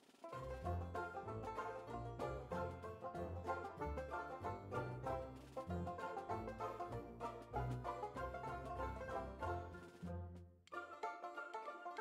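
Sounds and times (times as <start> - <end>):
plucked-string tune with bass line: 0.4 - 10.4.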